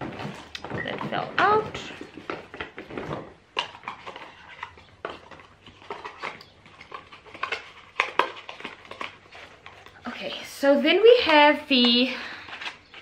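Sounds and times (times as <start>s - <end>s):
packaging clicks and taps: 3.6s - 10.0s.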